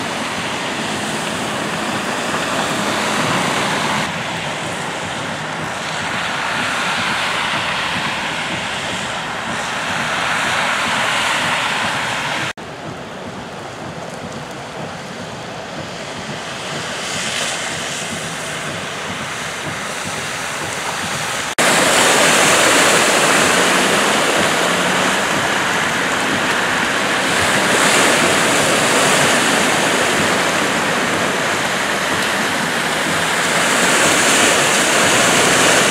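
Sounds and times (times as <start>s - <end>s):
cars driving through water: 0.0s - 35.9s
heavy rain hissing: 0.0s - 35.9s.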